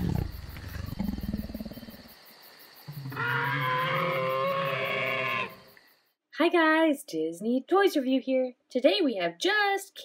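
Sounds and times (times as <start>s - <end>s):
dinosaur growl: 0.0s - 2.0s
dinosaur roar: 0.0s - 2.0s, 2.9s - 5.6s.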